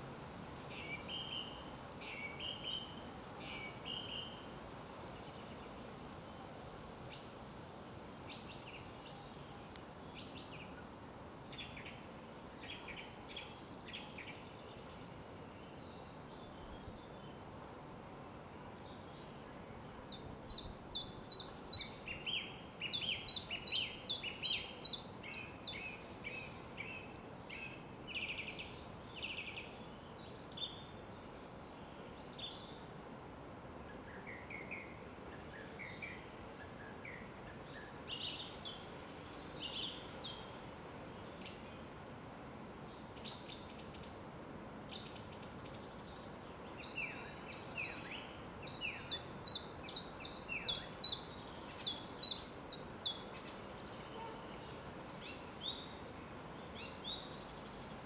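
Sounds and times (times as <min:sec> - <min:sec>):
faint background hiss: 0:00.0 - 0:58.0
songbirds calling and singing: 0:00.6 - 0:07.4, 0:08.2 - 0:33.2, 0:33.8 - 0:58.0.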